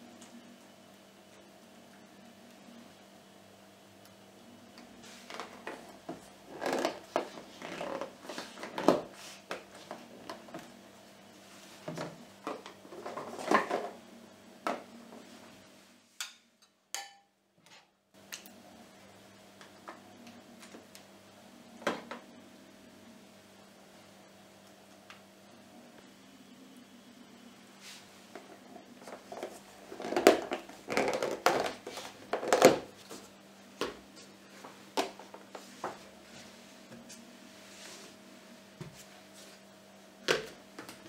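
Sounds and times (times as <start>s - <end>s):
plastic containers clattering: 11.9s - 14.0s, 29.0s - 32.9s.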